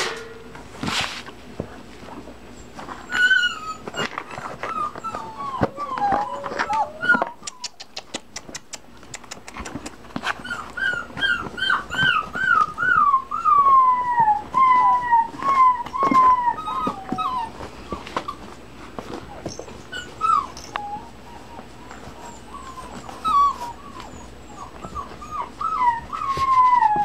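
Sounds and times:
puppies whimpering and whining: 1.6 - 8.3, 9.6 - 27.0.

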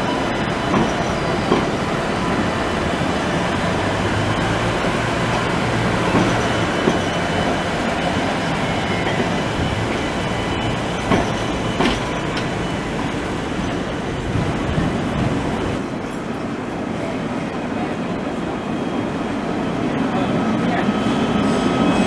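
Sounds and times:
tram wheels rumbling on rails: 0.0 - 22.0
sharp clicks from wheels and track: 11.0 - 12.6.

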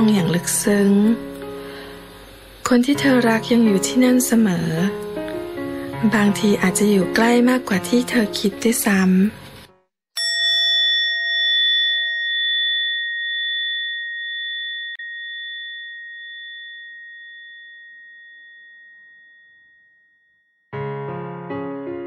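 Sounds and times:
soft piano music: 0.0 - 9.9, 20.7 - 22.0
bell ringing: 10.2 - 20.7.

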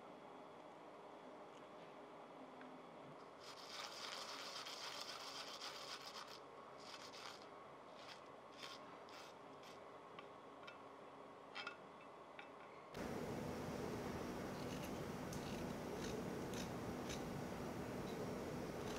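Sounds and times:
garlic grated on steel grater: 14.5 - 17.4.

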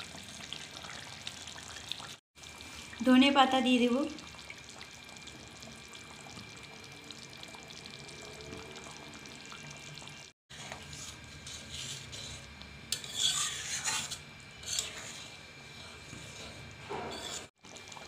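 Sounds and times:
curry simmering in a pan: 0.0 - 18.0
metal spatula scraping a pan: 10.5 - 17.6.

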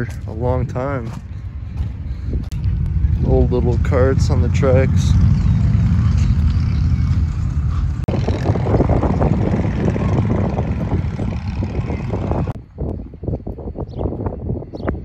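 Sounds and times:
footsteps crunching on gravel: 0.0 - 4.0
wind buffeting microphone: 0.0 - 15.0.

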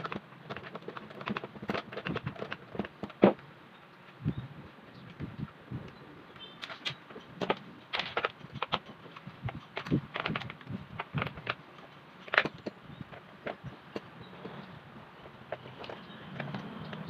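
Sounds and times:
plastic fan housing clicking and rattling: 0.0 - 3.5, 5.0 - 17.0.

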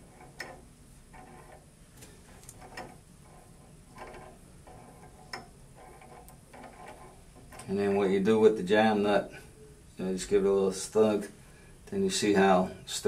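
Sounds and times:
light metal scraping: 0.0 - 9.6.

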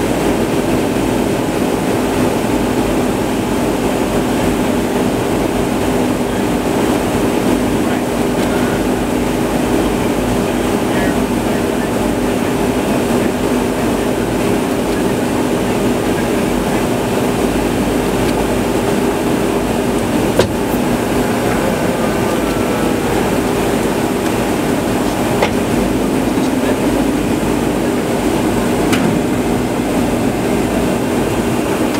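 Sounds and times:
aircraft engine drone: 0.0 - 31.9
low hum tones: 5.6 - 31.9
airflow rush: 12.6 - 31.9.

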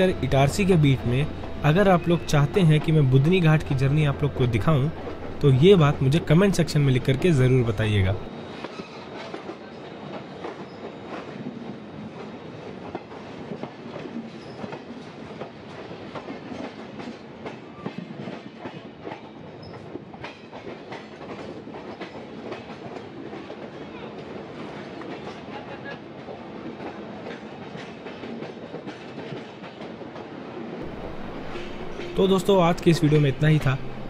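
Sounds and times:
train rushing rumble: 0.0 - 14.2, 30.8 - 34.0
train wheels clattering over joints: 0.0 - 34.0.

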